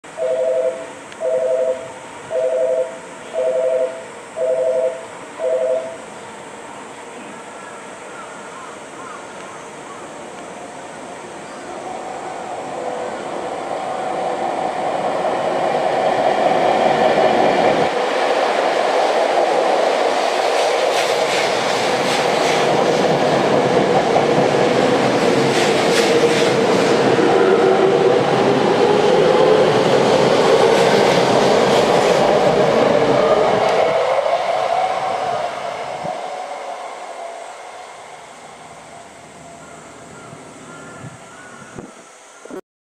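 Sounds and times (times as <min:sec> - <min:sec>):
train rushing past: 0:09.7 - 0:40.7.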